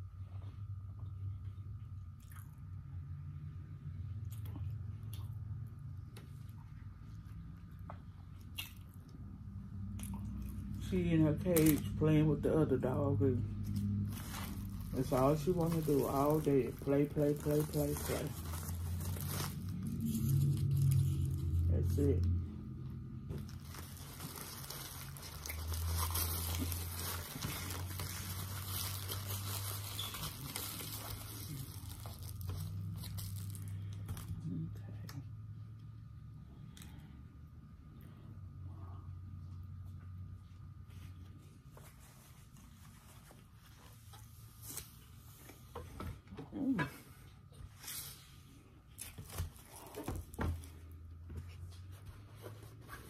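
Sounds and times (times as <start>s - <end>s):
low steady hum: 0.0s - 53.0s
paper wrapper crinkling: 13.6s - 22.4s, 23.2s - 34.5s
onion rings being chewed: 23.7s - 34.4s.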